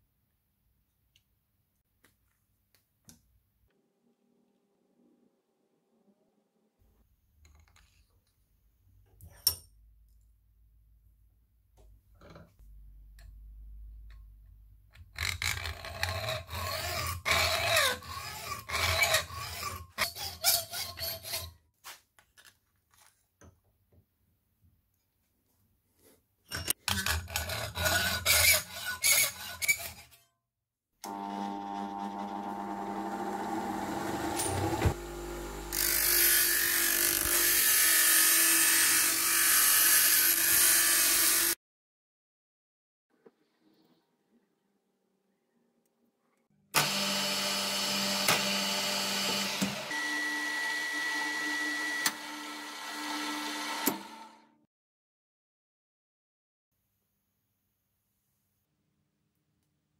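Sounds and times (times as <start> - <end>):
hand saw cutting metal: 15.2 - 21.6, 26.9 - 30.2, 35.7 - 41.6
bench grinder humming: 31.1 - 41.6, 46.8 - 54.5.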